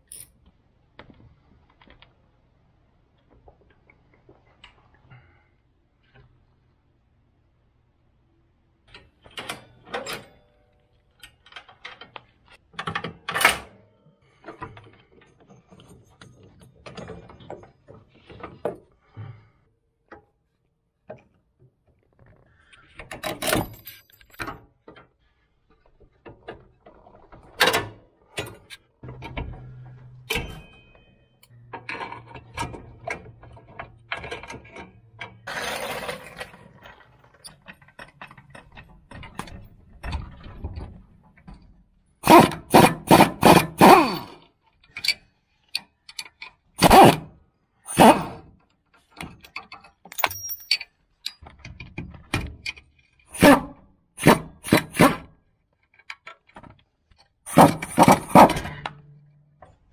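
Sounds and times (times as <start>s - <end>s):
hand tools clanking on metal: 49.5s - 51.4s.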